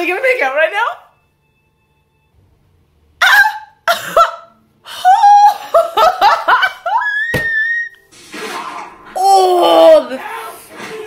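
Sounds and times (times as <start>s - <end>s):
woman laughing and squealing: 3.2s - 8.0s.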